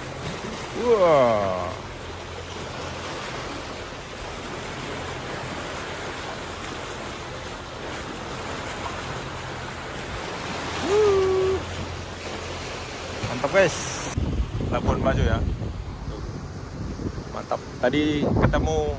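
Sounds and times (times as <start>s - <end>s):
sea water rushing along hull: 0.0s - 18.9s
person exclaiming: 0.8s - 1.8s, 10.8s - 11.7s
wind on microphone: 13.3s - 18.9s.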